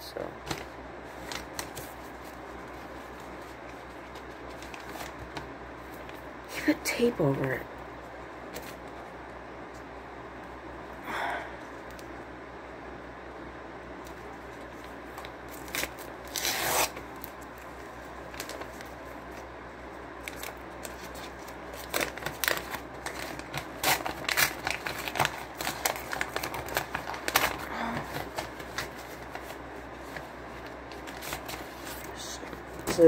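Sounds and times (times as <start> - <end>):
paper crinkling and tearing: 0.4 - 6.2, 15.2 - 17.3, 20.2 - 33.0
paper envelope ripping: 15.1 - 17.3, 20.2 - 33.0.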